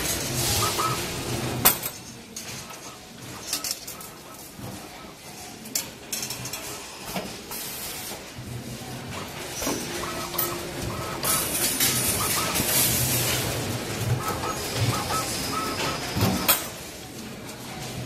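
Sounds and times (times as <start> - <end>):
low machine hum: 8.5 - 16.7.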